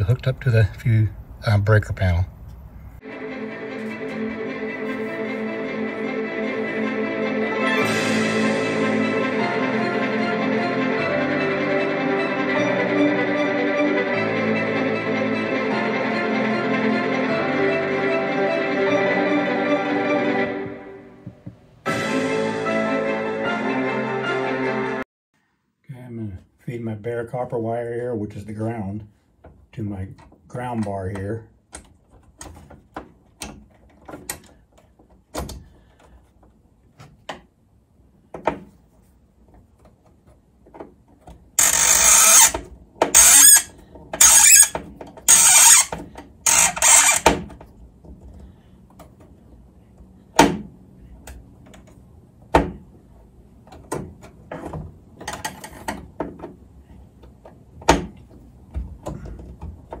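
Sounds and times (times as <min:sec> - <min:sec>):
ratcheting screwdriver rasping: 0:41.6 - 0:42.6, 0:43.2 - 0:45.9, 0:46.5 - 0:47.3.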